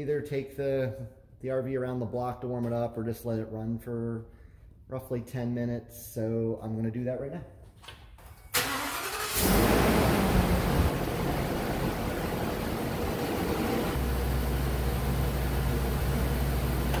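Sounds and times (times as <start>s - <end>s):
engine revving and idling: 9.0s - 17.0s.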